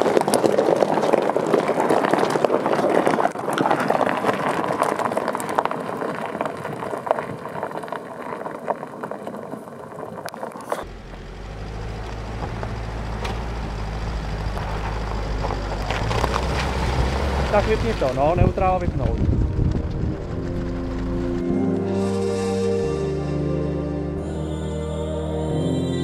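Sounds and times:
crunching and clattering: 0.0 - 21.9
engine droning: 10.5 - 26.0.

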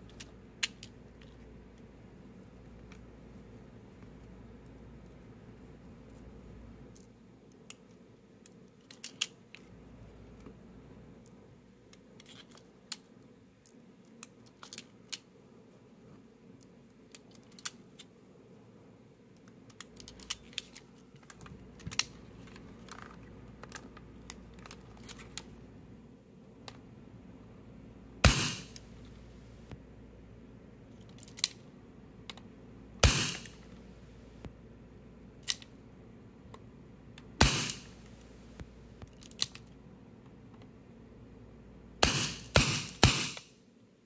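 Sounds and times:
metal revolver handling clicks: 0.1 - 1.0, 19.7 - 20.9, 31.0 - 31.6, 35.4 - 35.7, 39.0 - 39.7.

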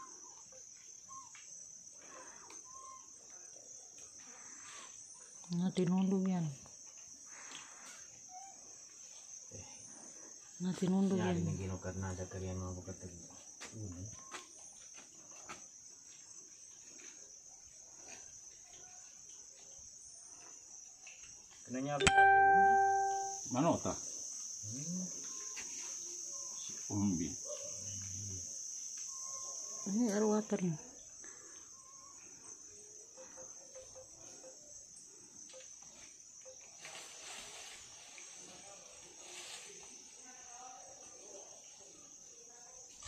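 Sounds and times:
shrill insect chorus: 0.0 - 43.0
high-pitched insect drone: 21.7 - 40.8.

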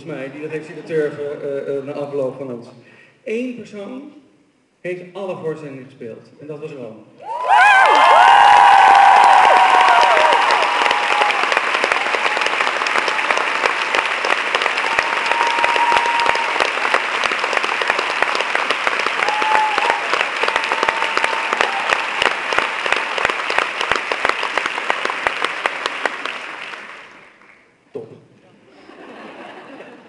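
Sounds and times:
audience applause: 7.3 - 27.6.

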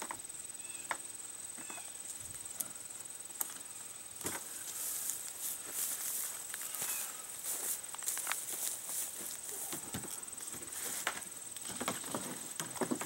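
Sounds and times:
faint high whine: 0.0 - 12.9
rustling: 4.2 - 13.0.

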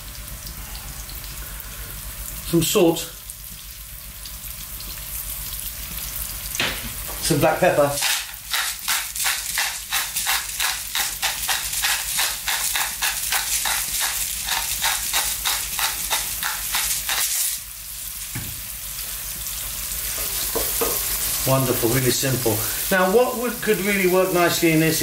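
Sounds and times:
vegetables sizzling in oil: 0.0 - 25.0
pepper mill grinding: 7.7 - 17.6.

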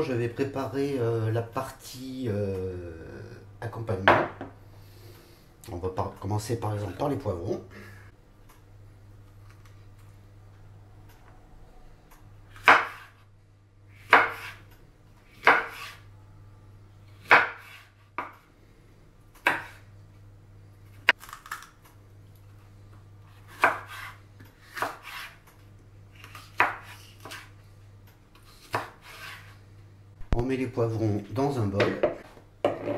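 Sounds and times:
faint low hum: 16.0 - 17.2.

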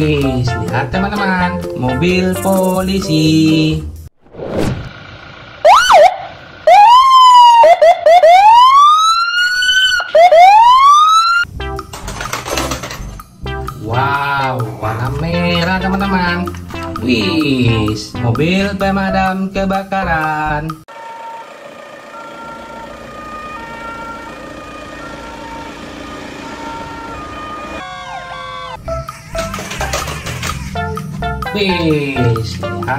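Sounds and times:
police siren: 5.4 - 11.5, 20.9 - 31.5.

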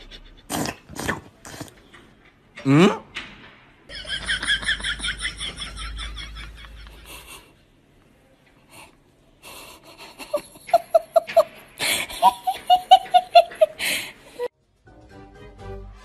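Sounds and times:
person laughing: 9.8 - 14.5.

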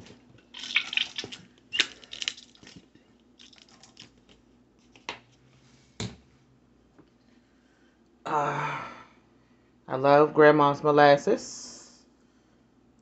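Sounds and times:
squeeze bottle sputtering: 0.0 - 2.8.

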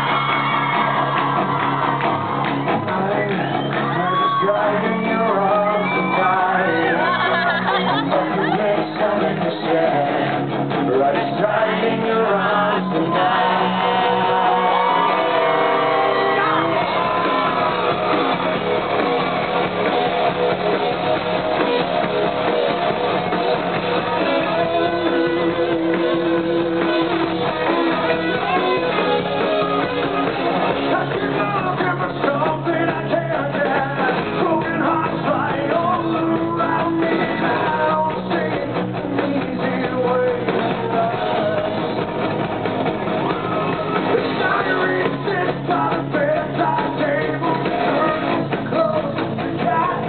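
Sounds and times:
bass and drums: 0.0 - 50.0
electric guitar: 0.0 - 50.0
live rock band playing: 0.0 - 50.0
male lead vocal: 2.6 - 18.6, 30.5 - 42.2, 43.2 - 50.0.

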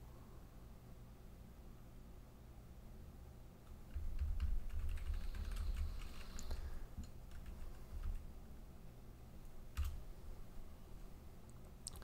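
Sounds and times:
typing on computer keyboard: 3.9 - 8.3, 9.7 - 10.0.

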